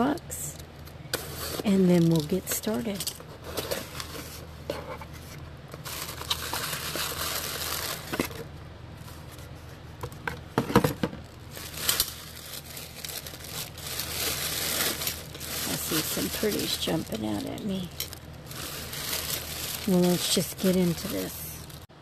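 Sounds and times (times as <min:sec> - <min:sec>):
tissue paper rustling: 0:05.8 - 0:08.2, 0:11.4 - 0:21.9.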